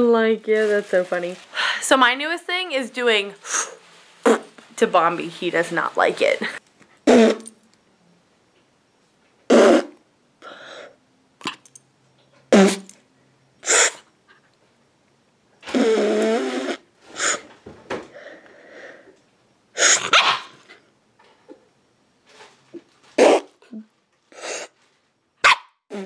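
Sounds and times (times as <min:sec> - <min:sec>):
person making sharp mouth noises: 0:04.2 - 0:04.5, 0:07.0 - 0:07.6, 0:09.5 - 0:10.0, 0:12.5 - 0:12.9, 0:15.6 - 0:17.4, 0:23.2 - 0:24.7.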